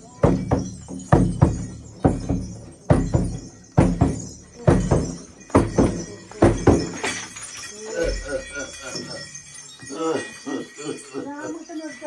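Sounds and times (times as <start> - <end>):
frame drum beaten slowly: 0.1 - 7.1.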